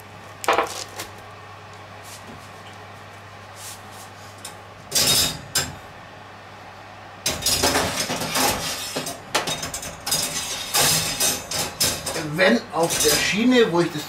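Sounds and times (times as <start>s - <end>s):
oven wire rack rattling: 7.3s - 14.0s.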